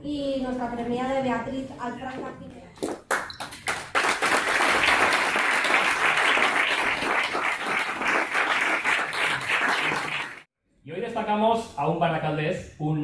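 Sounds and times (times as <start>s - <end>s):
audience applauding: 3.0s - 10.5s.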